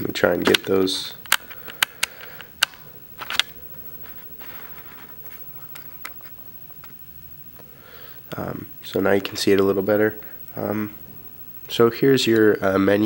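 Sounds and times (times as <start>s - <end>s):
handling clicks: 0.4s - 3.6s
soft rustle: 3.9s - 7.0s.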